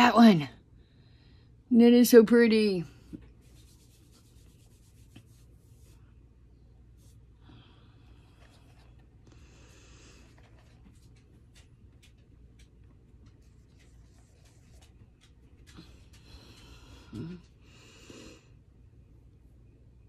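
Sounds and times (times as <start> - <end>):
fingertip rubbing eyeshadow and skin: 3.4 - 6.0.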